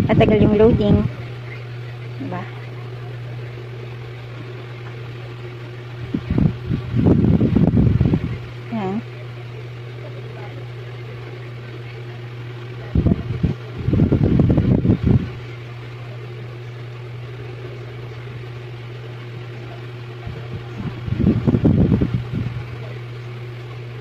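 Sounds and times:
low mechanical hum: 0.0s - 24.0s
irregular low rumbling: 3.6s - 8.7s.

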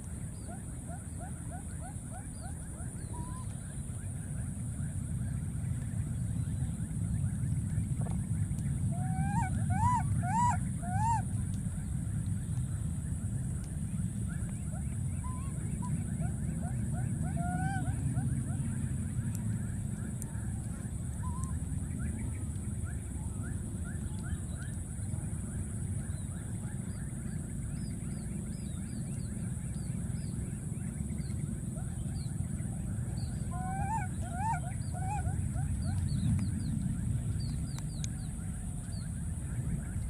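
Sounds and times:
warbling call: 8.9s - 11.3s, 14.7s - 18.8s, 33.3s - 36.0s.

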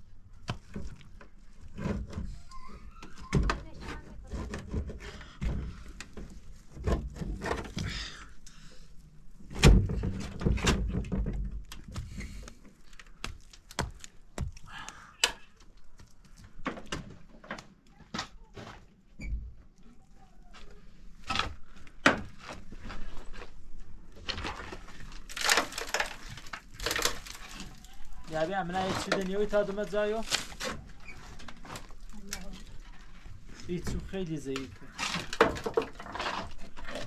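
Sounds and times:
objects knocking and thumping: 9.5s - 12.5s, 33.8s - 37.0s.

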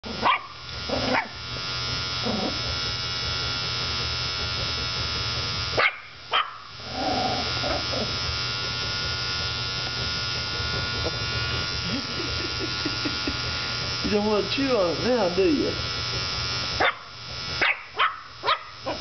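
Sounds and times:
beard trimmer buzzing: 0.0s - 19.0s
small dog barking: 0.1s - 1.4s, 5.8s - 6.7s, 16.8s - 19.0s.

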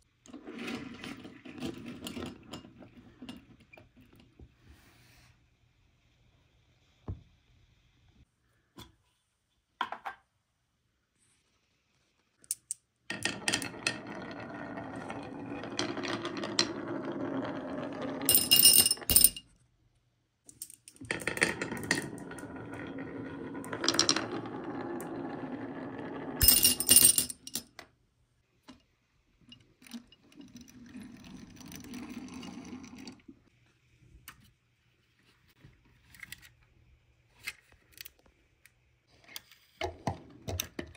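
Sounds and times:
marbles rolling on wooden slope: 13.1s - 19.3s, 20.7s - 27.3s, 30.1s - 33.4s
marble clinking into metal toy truck: 26.4s - 27.8s.

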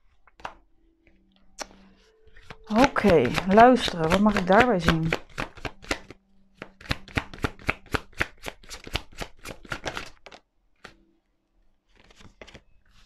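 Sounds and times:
cards being shuffled: 0.1s - 0.6s, 1.6s - 11.0s, 11.9s - 13.0s
cards tapped down: 0.3s - 0.6s, 2.4s - 11.0s.

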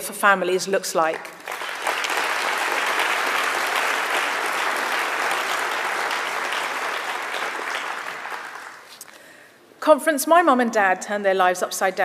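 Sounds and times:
audience applauding: 1.2s - 9.0s.

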